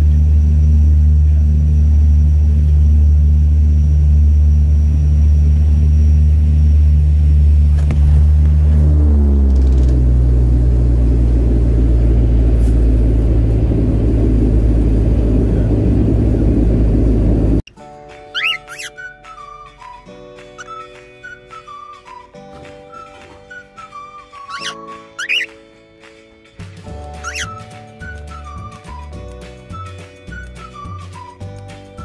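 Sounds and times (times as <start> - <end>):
low engine hum in airliner cabin: 0.0 - 17.6
rumble of rolling aircraft: 0.0 - 17.7, 24.2 - 25.5, 26.1 - 32.0.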